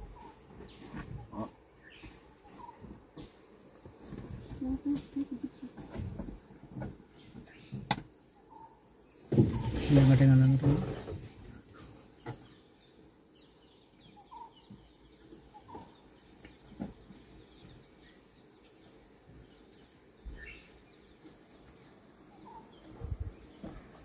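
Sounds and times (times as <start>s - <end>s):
bird chirps: 0.0s - 3.4s, 7.1s - 10.8s, 12.1s - 24.0s.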